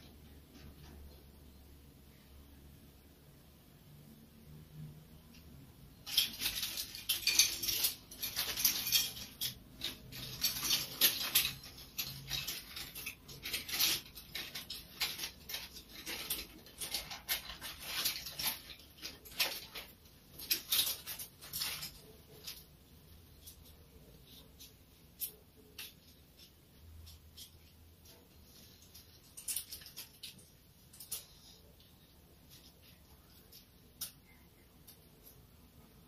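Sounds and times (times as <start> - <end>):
scratchy rustling: 6.0 - 34.0.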